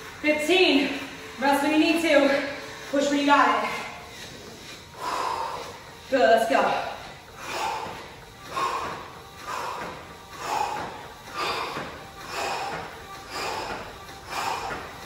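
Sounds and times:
woman breathing hard: 0:03.6 - 0:06.1, 0:06.8 - 0:15.0.

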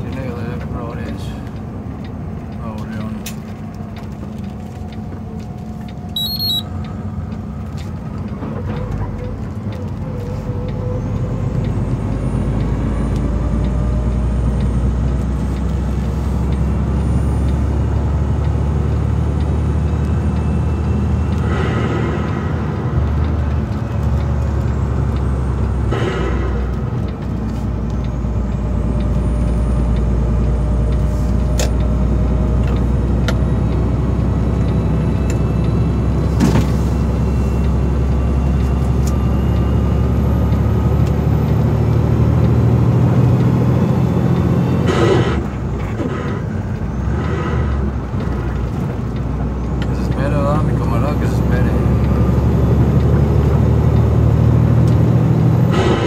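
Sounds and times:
truck engine and road drone: 0:00.0 - 0:56.0
short electronic beep: 0:06.1 - 0:06.8.

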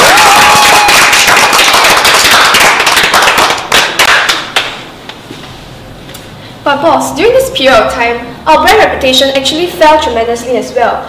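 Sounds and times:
people clapping: 0:00.0 - 0:04.9.

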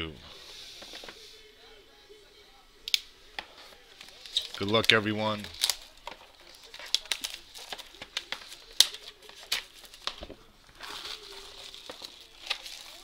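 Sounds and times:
plastic wrap crinkling and tearing: 0:03.4 - 0:13.0
plastic wrap being cut: 0:10.8 - 0:13.0.

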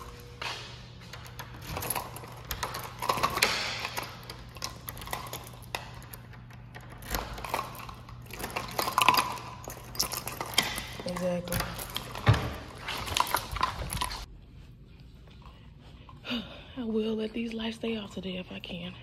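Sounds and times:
keys jangling: 0:01.1 - 0:14.2.

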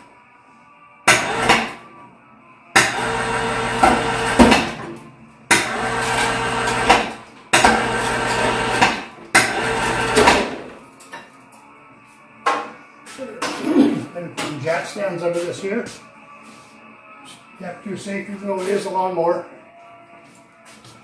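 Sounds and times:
electric chain hoist humming: 0:02.8 - 0:04.8, 0:05.5 - 0:10.6.

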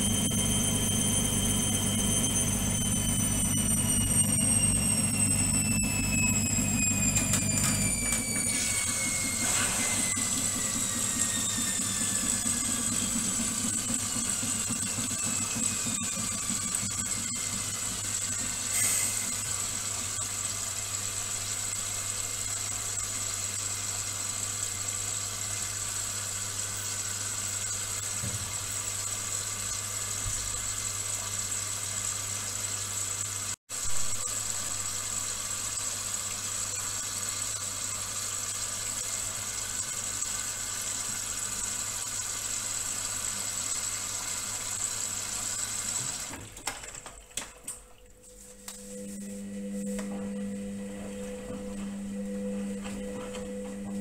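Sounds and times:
washing machine motor whine: 0:00.0 - 0:54.0
low hum: 0:48.3 - 0:54.0.

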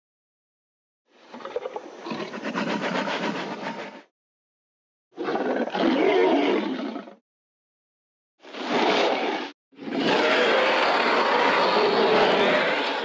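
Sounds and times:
dinosaur roars: 0:09.8 - 0:13.0.

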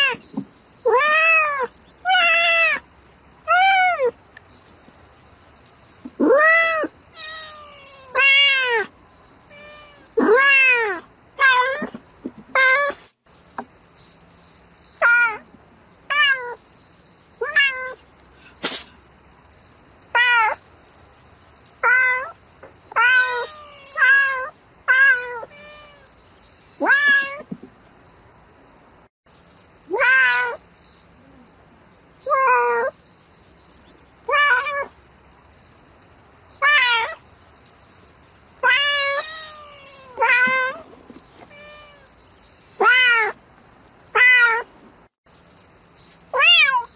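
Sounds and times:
cat meowing: 0:00.8 - 0:02.8, 0:03.5 - 0:04.2, 0:06.2 - 0:08.9, 0:09.5 - 0:12.0, 0:17.4 - 0:18.0, 0:20.1 - 0:20.6, 0:21.8 - 0:26.1, 0:26.8 - 0:27.5, 0:29.9 - 0:30.6, 0:32.2 - 0:33.0, 0:34.3 - 0:34.9, 0:36.6 - 0:37.2, 0:38.6 - 0:42.1, 0:42.8 - 0:43.4, 0:44.1 - 0:44.7, 0:46.3 - 0:46.9.

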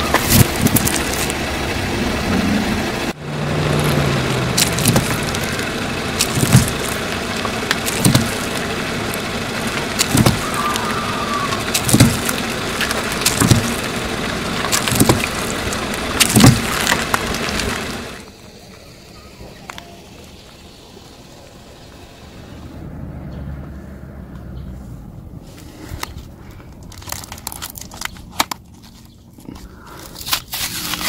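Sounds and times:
car engine and tyre noise: 0:00.0 - 0:31.0
cartons bursting with sharp pops: 0:03.8 - 0:18.3.

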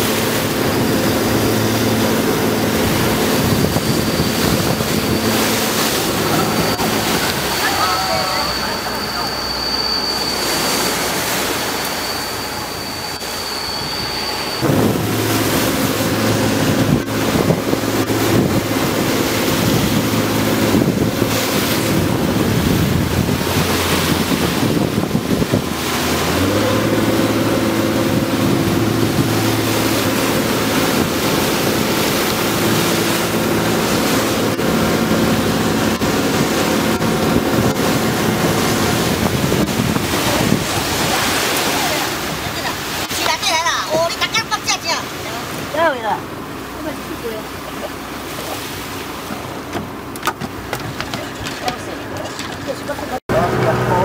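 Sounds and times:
wind buffeting microphone: 0:00.0 - 0:08.7, 0:13.9 - 0:45.8
thin high whine: 0:00.0 - 0:43.7
boat engine running: 0:00.0 - 0:54.0
sea water: 0:00.0 - 0:54.0.

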